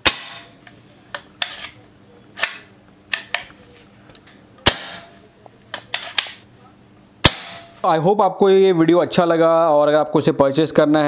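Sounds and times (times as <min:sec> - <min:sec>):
air rifle shot: 0:00.0 - 0:00.6, 0:04.7 - 0:05.2, 0:07.2 - 0:07.8.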